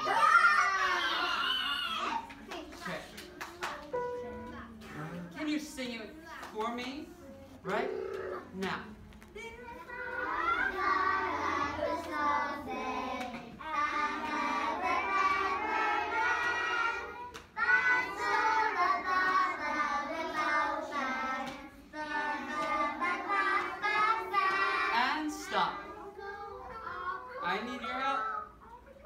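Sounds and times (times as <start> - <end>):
children singing together: 9.6 - 27.4.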